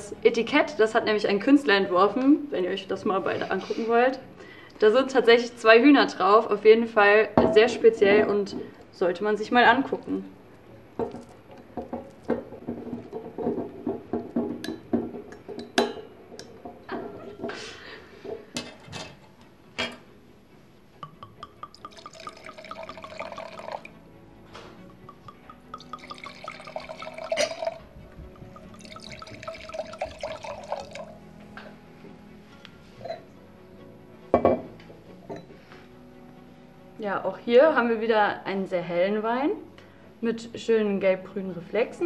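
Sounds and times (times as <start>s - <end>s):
wine pouring into glass: 21.0s - 24.0s, 24.8s - 31.2s.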